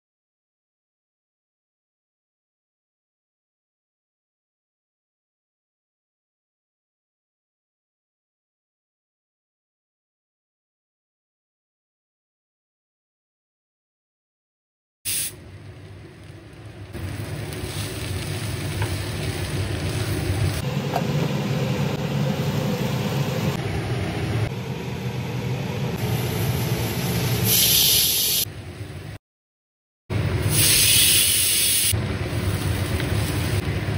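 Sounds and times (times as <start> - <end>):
vegetables sizzling in oil: 15.1 - 20.7, 30.4 - 33.9.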